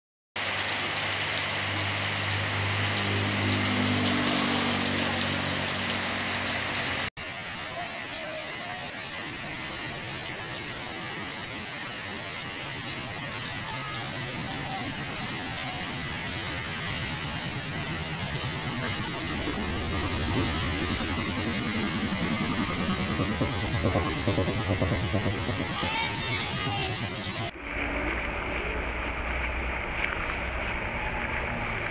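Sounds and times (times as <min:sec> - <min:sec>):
heavy rain on pavement: 0:00.4 - 0:27.5
low steady hum: 0:16.0 - 0:27.9.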